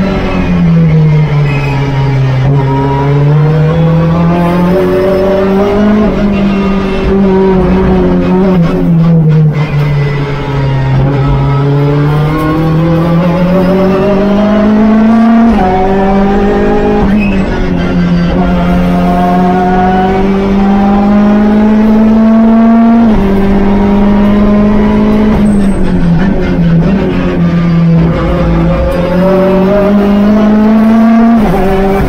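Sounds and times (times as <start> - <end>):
race car engine accelerating: 0.0 - 32.0.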